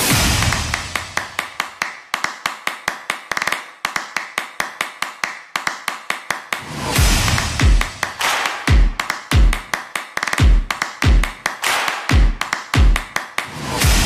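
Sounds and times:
beat with deep bass drum: 6.9s - 9.7s, 10.4s - 13.1s, 13.8s - 14.0s.

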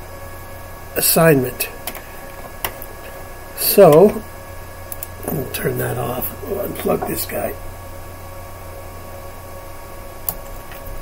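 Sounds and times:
low hum: 0.0s - 10.2s
even hiss: 0.9s - 7.8s.

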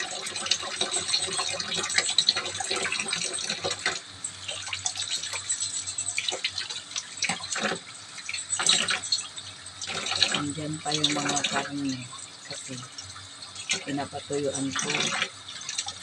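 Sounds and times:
tap water running into sink: 0.0s - 16.0s.

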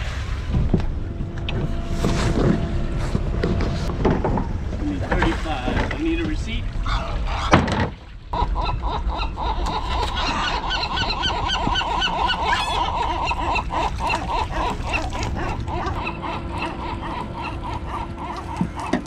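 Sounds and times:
chorus of animal calls: 8.4s - 19.0s.

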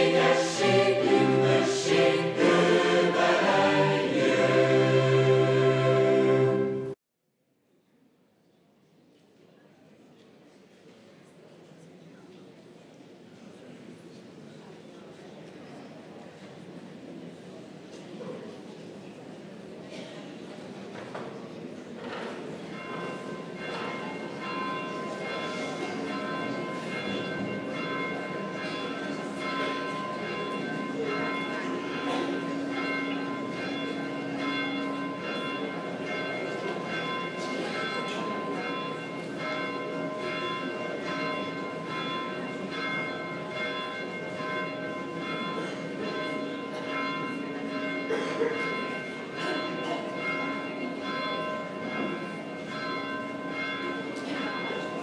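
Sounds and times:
church bells ringing: 0.0s - 7.0s, 22.4s - 55.0s.

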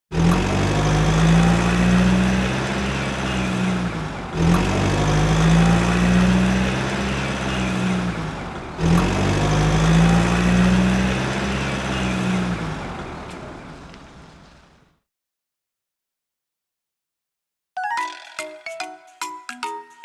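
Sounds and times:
low engine hum: 0.2s - 15.0s.

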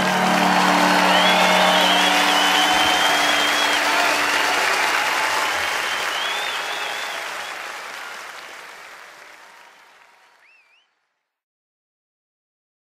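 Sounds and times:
audience applauding and cheering: 0.0s - 10.9s
high whistles: 0.4s - 7.6s, 10.4s - 10.9s.

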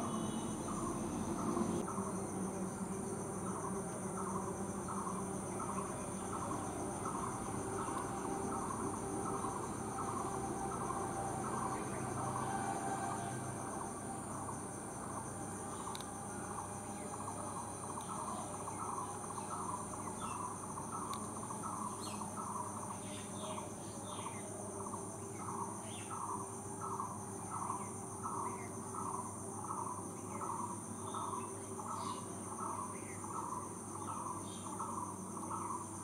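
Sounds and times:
insects droning: 0.0s - 36.0s.

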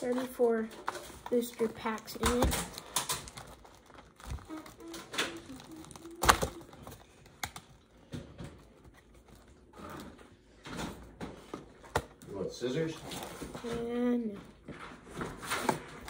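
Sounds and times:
plastic wrap crinkling: 0.0s - 10.6s.

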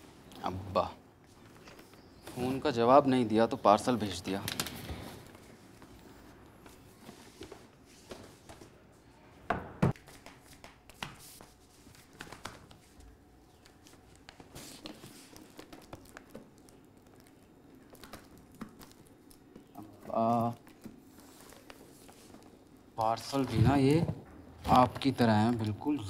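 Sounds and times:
cardboard parcel rustling and tapping: 9.9s - 25.8s.

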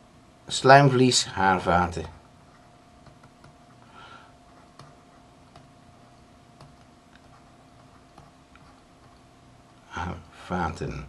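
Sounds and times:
low electrical hum: 0.0s - 11.0s
keyboard typing clicks: 3.0s - 3.6s.

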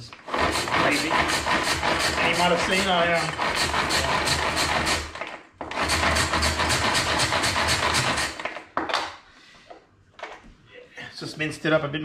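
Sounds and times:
food chopper whirring and rattling: 0.1s - 8.6s.

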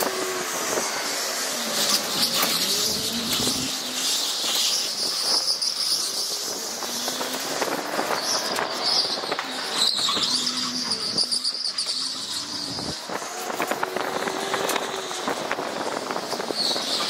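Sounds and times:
electric motor whine: 0.0s - 5.0s
tyre squeal: 0.0s - 15.2s, 15.8s - 17.0s.

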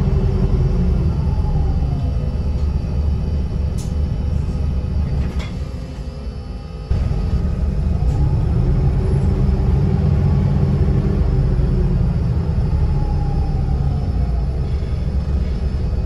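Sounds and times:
bus engine rumble: 0.0s - 16.0s
faint rising whine: 6.1s - 16.0s.

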